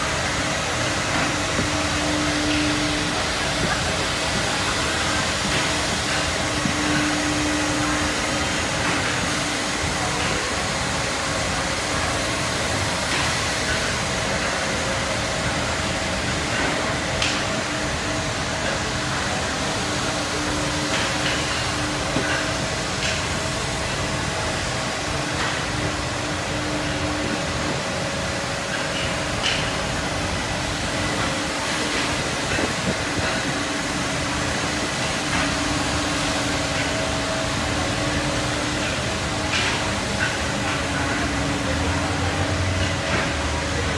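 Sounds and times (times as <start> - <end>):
cnc router cutting wood: 0.3 - 10.9.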